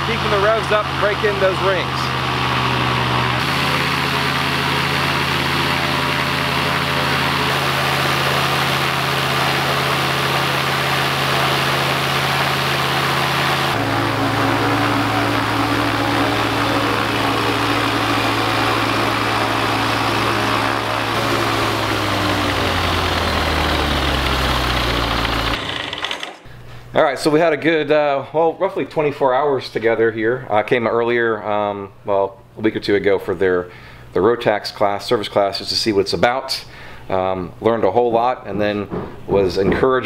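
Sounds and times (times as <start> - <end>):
aircraft engine with propeller running: 0.0 - 26.4.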